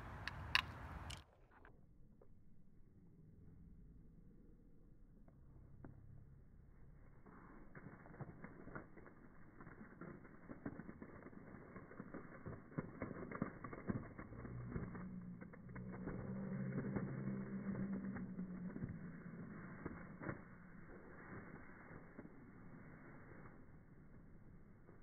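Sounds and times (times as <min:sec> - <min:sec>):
low hum: 0:00.0 - 0:25.0
deep crackling and popping foam: 0:07.0 - 0:25.0.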